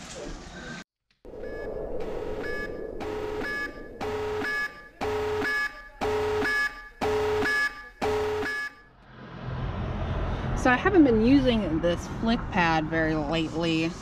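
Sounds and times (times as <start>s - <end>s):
pulsing buzzing alarm tone: 1.3s - 8.9s.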